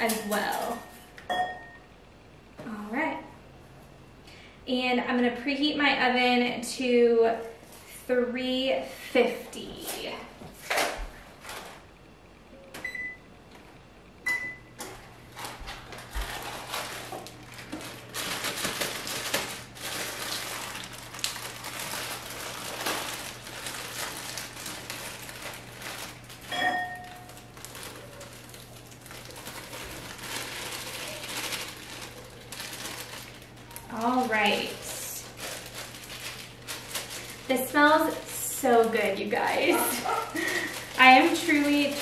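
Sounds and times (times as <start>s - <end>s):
plastic bag rustling and crinkling: 10.0s - 11.9s, 15.2s - 42.0s
oven electronic beeps: 12.5s - 13.3s, 14.2s - 14.8s, 26.5s - 27.3s.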